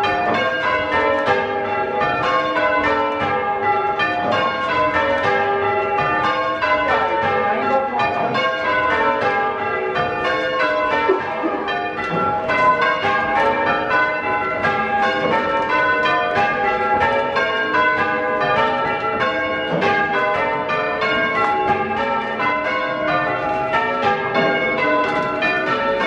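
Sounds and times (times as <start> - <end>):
church bells ringing in changes: 0.0 - 26.0.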